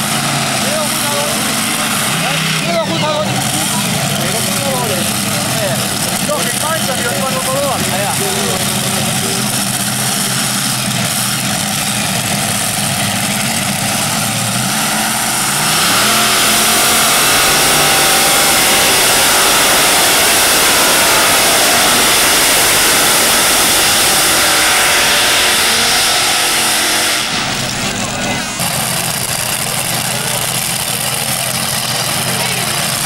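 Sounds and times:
pulling tractor engines revving: 0:00.0 - 0:33.0.

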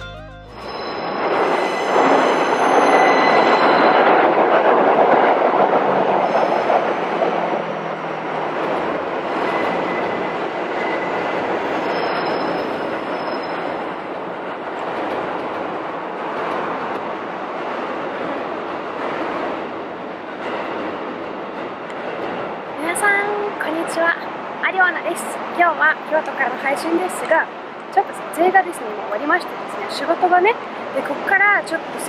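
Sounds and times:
high wheel squeals: 0:00.5 - 0:04.2, 0:06.2 - 0:06.7, 0:09.4 - 0:14.0
train wheels rushing on rails: 0:00.6 - 0:32.0.

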